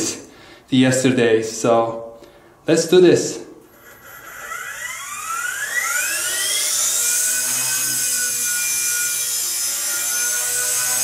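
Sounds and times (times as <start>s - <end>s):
high rotor hiss: 3.6s - 8.8s
helicopter rotor whine: 3.7s - 9.0s.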